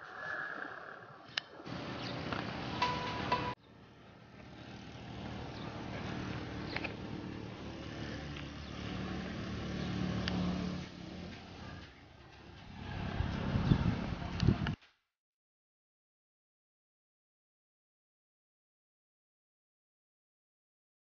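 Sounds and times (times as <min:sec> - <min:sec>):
motor vehicle engine running: 0:01.7 - 0:14.8.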